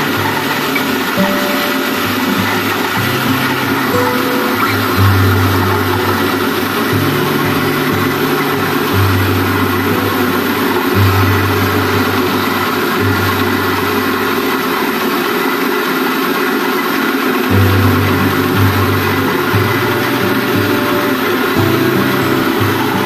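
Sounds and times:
low machine hum: 0.0s - 23.0s
rice milling machine running: 0.0s - 23.0s.

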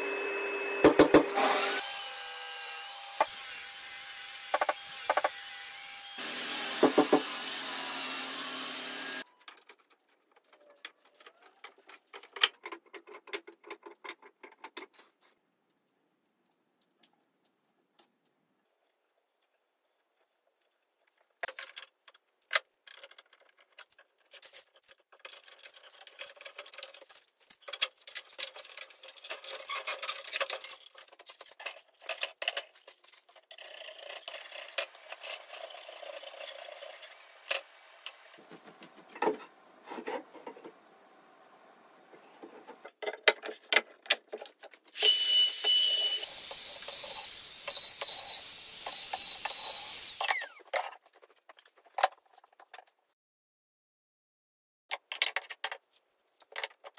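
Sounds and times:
clamps clicking and knocking: 42.8s - 44.9s
handheld router whining: 45.0s - 50.7s.

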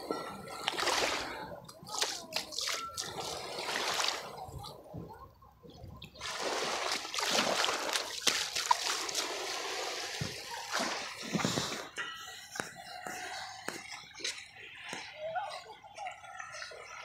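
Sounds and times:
waves lapping on sand: 0.6s - 4.4s, 6.2s - 12.0s.

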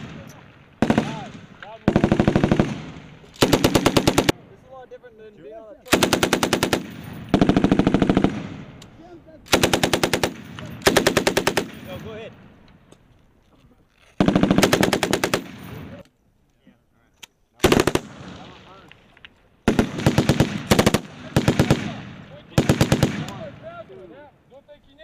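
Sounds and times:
machine gun bursts: 3.4s - 4.3s, 5.9s - 8.4s, 9.5s - 11.9s, 14.2s - 16.0s.

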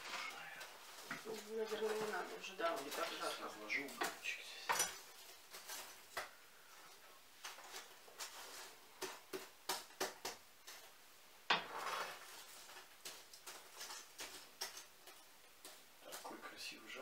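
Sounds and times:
mug and tableware clinking: 4.0s - 5.0s.

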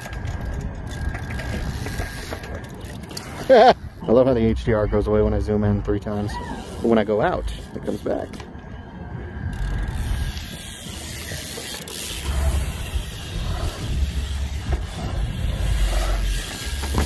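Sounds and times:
freewheel hub clicking: 0.0s - 3.8s, 9.5s - 17.0s
bike rolling over concrete: 0.0s - 8.8s, 9.4s - 17.0s
wind rumbling on microphone: 0.0s - 17.0s.

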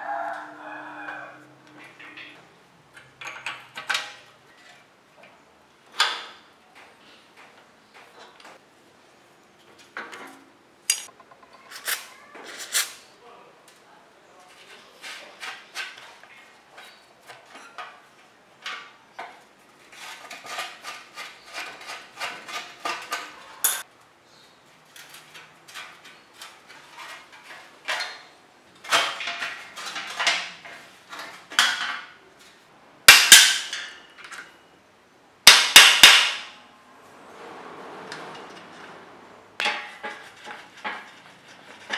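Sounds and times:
sharp metal knocks: 33.1s - 34.1s, 35.5s - 36.6s.

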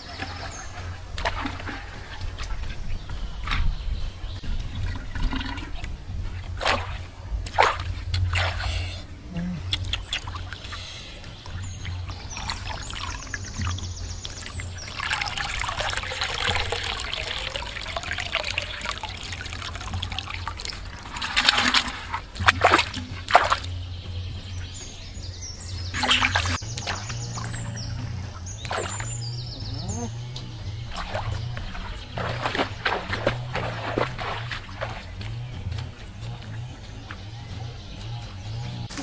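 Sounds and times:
sharp water splashes: 0.0s - 9.0s, 9.7s - 39.0s
water gurgling in a clay pot: 0.0s - 39.0s.

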